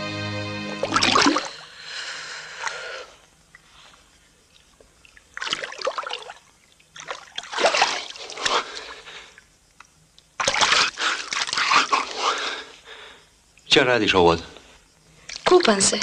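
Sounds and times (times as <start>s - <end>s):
sea water splashing: 5.1s - 8.5s.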